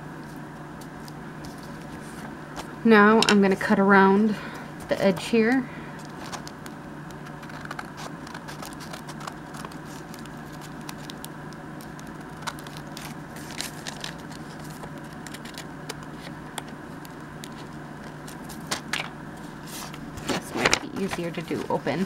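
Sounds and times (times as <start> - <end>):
paper rustling: 6.0 - 16.4
scissors snipping paper: 7.1 - 18.8.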